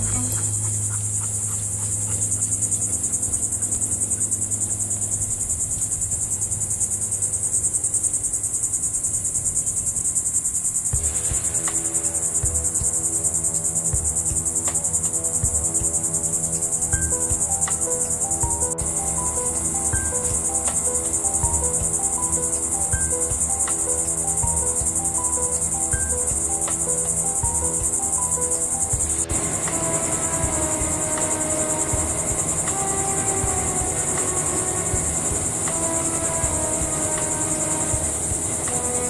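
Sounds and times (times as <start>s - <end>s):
high-pitched insect chorus: 0.0s - 39.0s
low steady hum: 10.9s - 39.0s.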